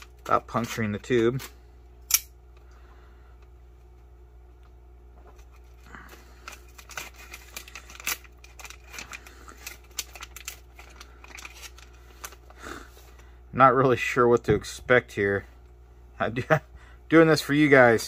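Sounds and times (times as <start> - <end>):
foil pouch tearing and crinkling: 5.8 - 12.6.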